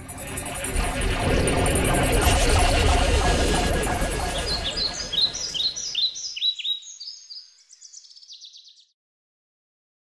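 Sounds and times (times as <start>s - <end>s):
birds chirping: 3.2s - 8.9s.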